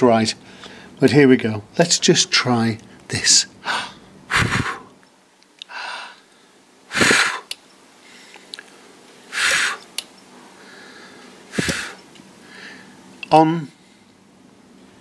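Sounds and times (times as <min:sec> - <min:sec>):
breathy puffs of air: 0:03.6 - 0:05.0, 0:05.7 - 0:08.5, 0:09.3 - 0:13.1.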